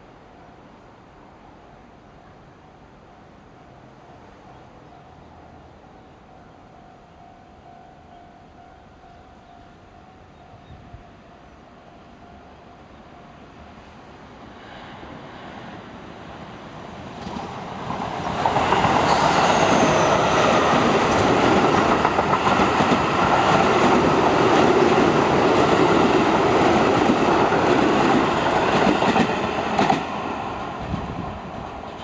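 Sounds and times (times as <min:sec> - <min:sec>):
electric train passing: 0:00.0 - 0:32.0
wheels clacking on rails: 0:17.1 - 0:32.0.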